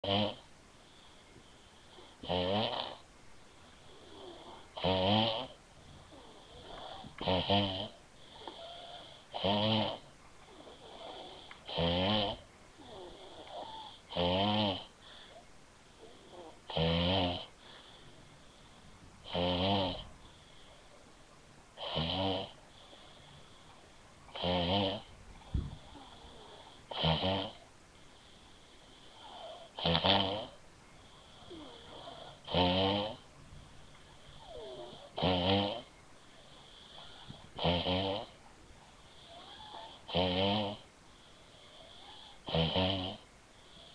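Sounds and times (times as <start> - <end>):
woman snoring: 0.0 - 0.5, 1.9 - 3.0, 3.9 - 14.9, 16.0 - 17.5, 19.2 - 20.6, 21.8 - 23.0, 24.3 - 25.1, 25.8 - 27.6, 29.1 - 30.6, 31.4 - 33.2, 34.3 - 35.9, 36.7 - 38.4, 39.2 - 40.8, 41.6 - 43.2.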